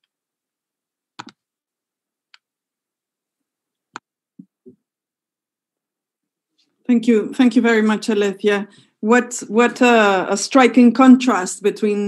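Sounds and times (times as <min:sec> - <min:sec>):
computer mouse clicks: 0:01.2 - 0:01.4.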